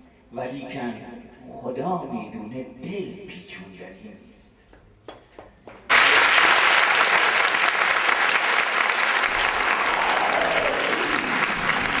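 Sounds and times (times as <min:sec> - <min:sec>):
audience applauding: 0:05.9 - 0:12.0.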